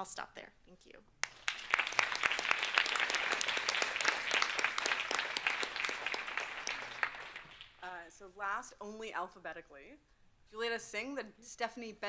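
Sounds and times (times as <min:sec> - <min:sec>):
audience applause: 0:01.2 - 0:07.8.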